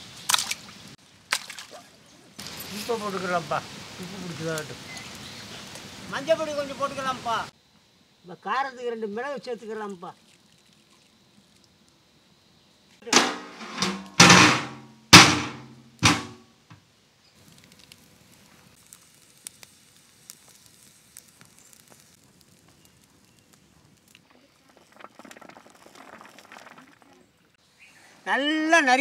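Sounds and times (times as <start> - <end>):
wood fire crackling: 2.4 - 7.5, 17.3 - 27.2.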